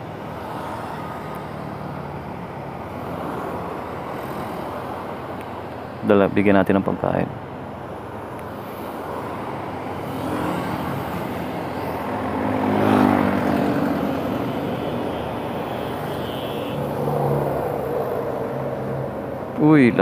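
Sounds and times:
car passing: 0.0s - 20.0s
road noise: 0.0s - 20.0s.

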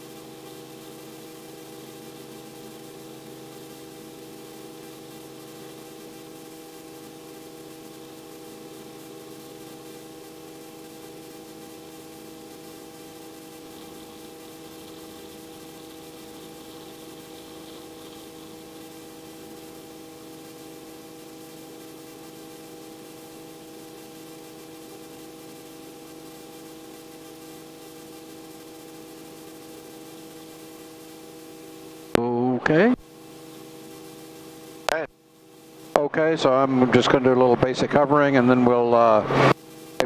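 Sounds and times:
helicopter running: 0.0s - 24.2s.

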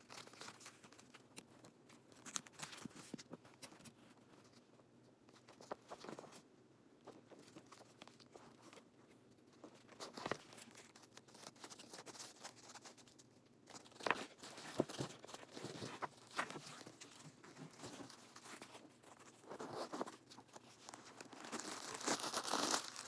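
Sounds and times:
plastic wrapping crinkling: 13.7s - 23.0s.

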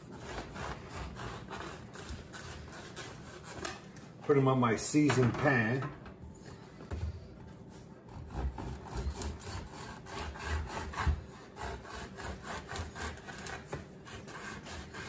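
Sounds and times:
knife sawing through bread: 0.0s - 3.9s, 7.8s - 15.0s.

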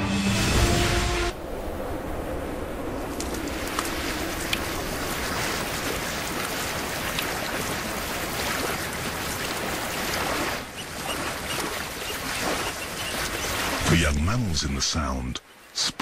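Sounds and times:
running water rushing: 0.4s - 16.0s
water dripping into pool: 5.8s - 12.3s.

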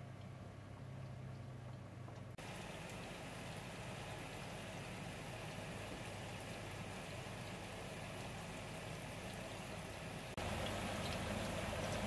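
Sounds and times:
tofu deep-frying sizzle: 2.4s - 12.0s.

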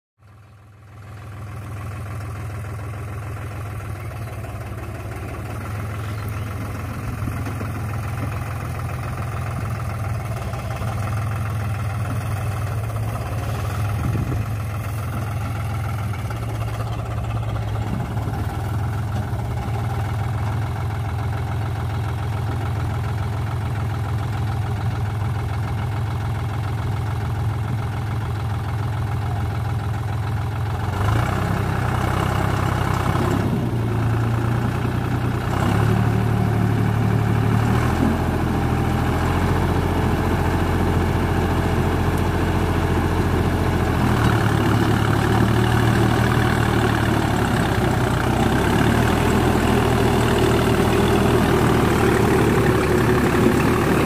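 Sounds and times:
tractor diesel engine running: 0.2s - 54.0s.

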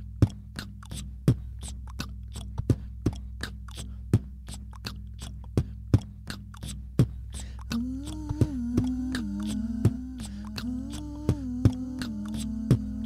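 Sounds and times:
beatbox beat: 0.0s - 13.0s
low bass tone: 0.0s - 13.0s.

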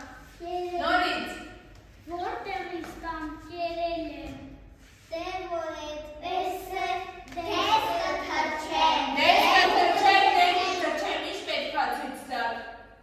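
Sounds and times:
children's voices: 5.1s - 11.6s.

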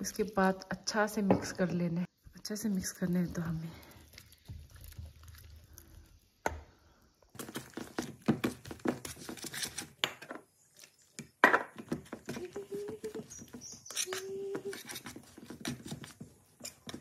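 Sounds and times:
whisk scraping metal bowl: 13.2s - 17.0s.

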